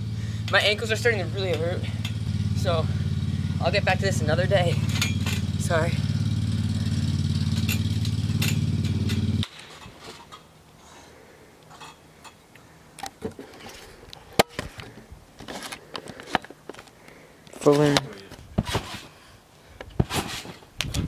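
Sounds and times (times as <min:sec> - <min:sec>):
steady engine drone: 0:00.0 - 0:14.1.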